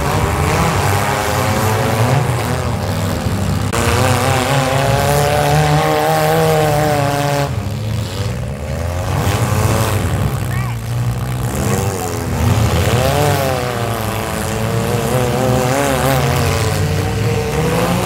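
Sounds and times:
car engines revving together: 0.0s - 18.0s.

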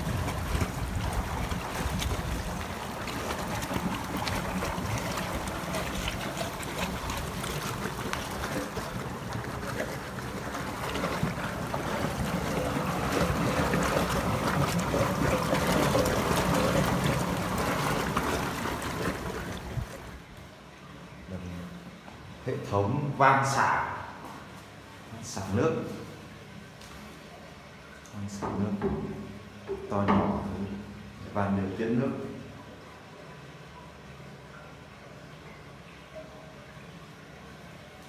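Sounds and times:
water rushing into concrete basin: 0.0s - 20.3s.

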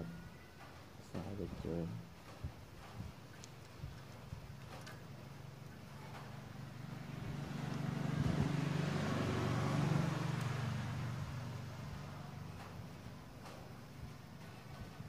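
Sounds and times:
vehicle engine passing by: 5.8s - 15.0s.

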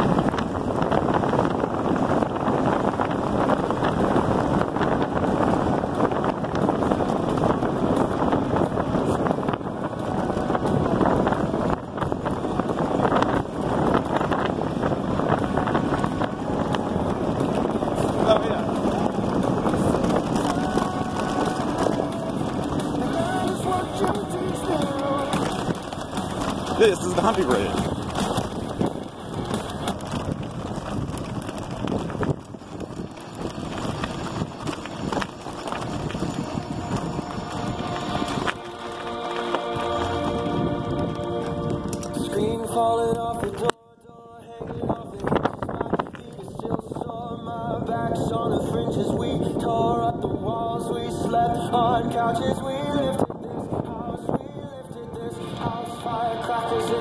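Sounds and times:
bike knocks and rattles: 0.0s - 38.7s
tyre rumble on rough road: 0.0s - 57.0s
wind buffeting microphone: 0.0s - 57.0s.

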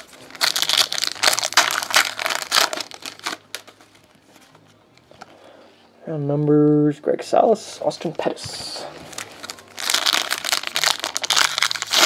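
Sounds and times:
foil wrapper crinkling and tearing: 0.0s - 3.8s, 9.0s - 12.0s.

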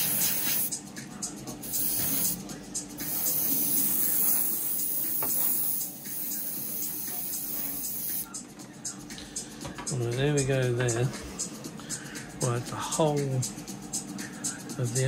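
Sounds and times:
airbrush spraying: 0.0s - 0.7s, 1.6s - 2.4s, 3.0s - 8.3s.

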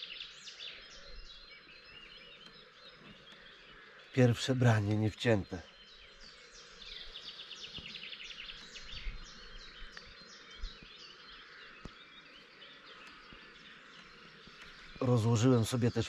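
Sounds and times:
faint outdoor background: 0.0s - 16.0s
small birds chirping and trilling: 0.0s - 16.0s
faint clicks: 12.9s - 14.8s.

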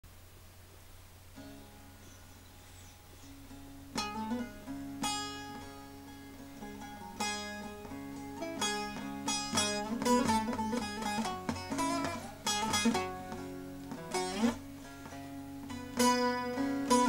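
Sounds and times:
long-necked lute plucked: 1.3s - 17.0s.

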